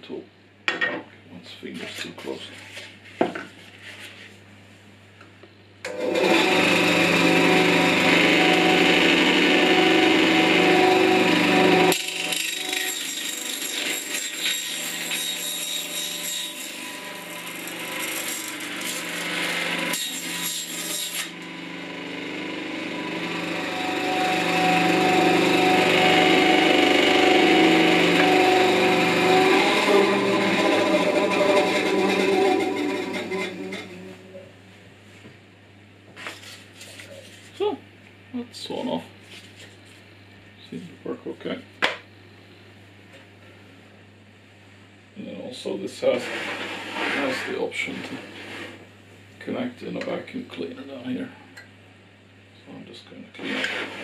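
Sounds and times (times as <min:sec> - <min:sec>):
bandsaw motor humming: 0:05.8 - 0:34.5
saw blade cutting cardboard: 0:10.7 - 0:21.4, 0:46.1 - 0:47.6, 0:53.4 - 0:54.0.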